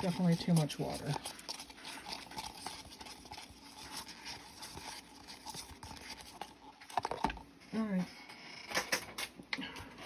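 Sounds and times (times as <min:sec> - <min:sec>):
stir stick scraping in plastic cup: 0:00.0 - 0:08.8.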